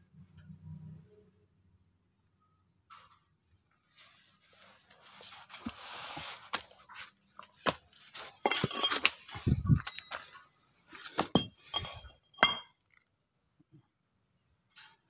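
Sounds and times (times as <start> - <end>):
metal parts clinking and knocking: 8.2 - 13.0.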